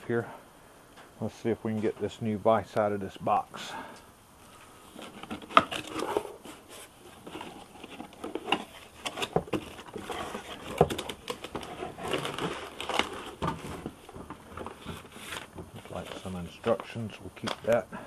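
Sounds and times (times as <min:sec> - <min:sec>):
cardboard scraping and rustling: 0:04.9 - 0:17.8
plastic wrap crinkling: 0:04.9 - 0:17.8.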